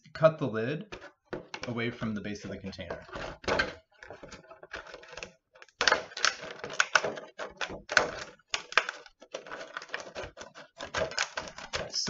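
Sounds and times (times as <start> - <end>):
scissors snipping plastic: 3.0 - 12.0.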